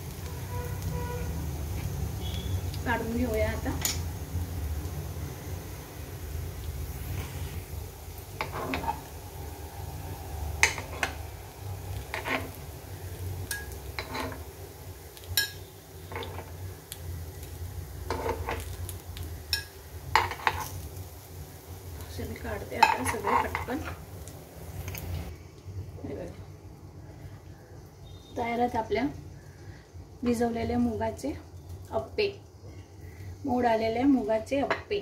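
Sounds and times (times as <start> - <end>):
metal spoon scraping a pan: 8.4 - 9.1, 10.6 - 11.2, 11.9 - 12.8, 13.4 - 14.5, 15.3 - 16.6, 18.0 - 18.8, 19.5 - 20.8, 22.8 - 24.0.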